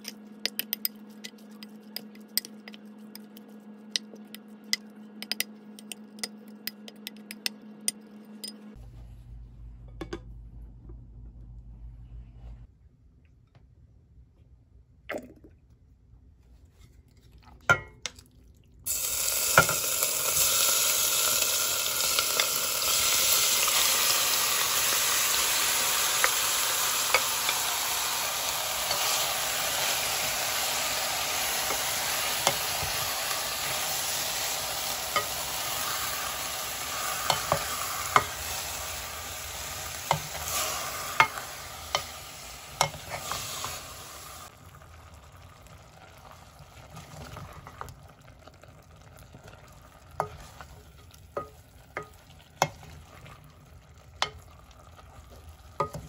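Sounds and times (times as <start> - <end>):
food sizzling in hot oil: 18.9 - 47.6.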